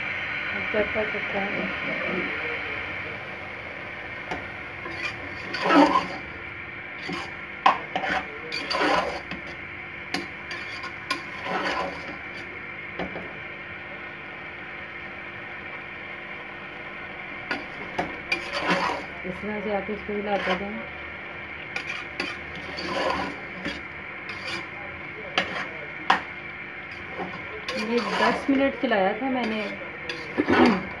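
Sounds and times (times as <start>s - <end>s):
metal spoon stirring in pot: 4.3s - 6.3s, 7.0s - 12.5s, 17.5s - 20.8s, 21.6s - 31.0s.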